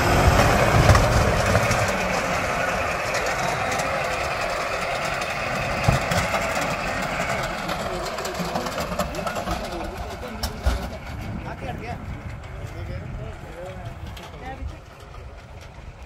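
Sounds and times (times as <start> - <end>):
shredder machine running: 0.0 - 16.0.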